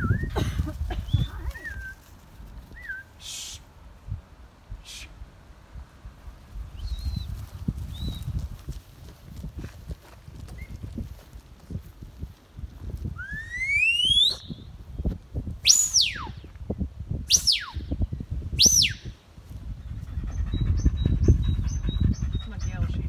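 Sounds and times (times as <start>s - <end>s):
shepherd's whistle: 0.0s - 0.4s, 13.2s - 14.7s, 15.6s - 16.4s, 17.3s - 17.9s, 18.6s - 19.1s
short high peeps: 3.1s - 3.7s.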